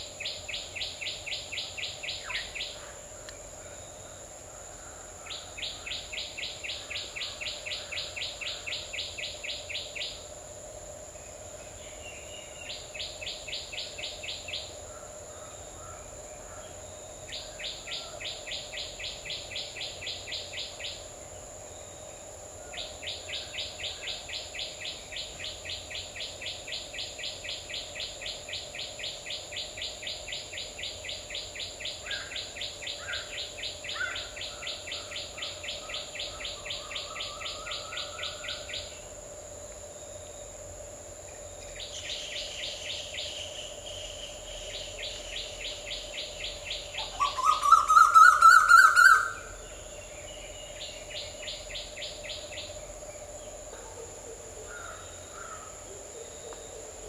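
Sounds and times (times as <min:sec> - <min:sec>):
high-pitched insect drone: 0:00.0 - 0:57.0
bird calling sharp notes: 0:47.0 - 0:49.5.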